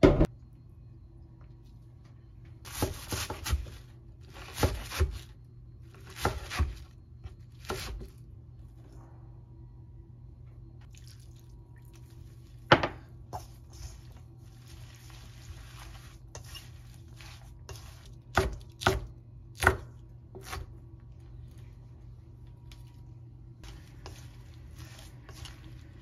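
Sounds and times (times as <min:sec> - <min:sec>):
soft rustle in metal bowl: 0:11.8 - 0:18.2, 0:21.2 - 0:26.0
knife chopping on wooden board: 0:17.7 - 0:20.7.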